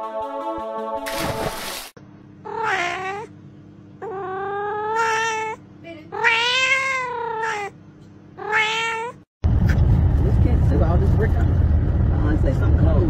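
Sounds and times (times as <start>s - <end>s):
steady low hum: 2.0s - 6.2s, 9.4s - 13.0s
cat yowling: 2.4s - 3.3s, 4.0s - 7.8s, 8.4s - 9.3s.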